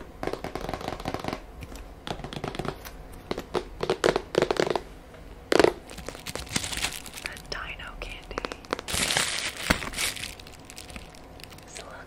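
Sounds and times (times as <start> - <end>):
fingernails tapping on cardboard: 0.2 - 4.8.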